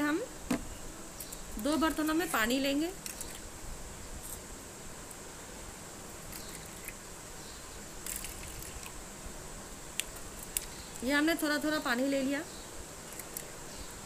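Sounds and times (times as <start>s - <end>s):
steady hiss: 0.0s - 14.0s.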